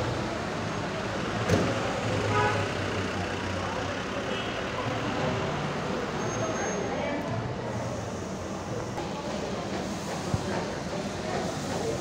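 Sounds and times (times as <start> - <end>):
vehicle engines running: 0.0 - 9.7.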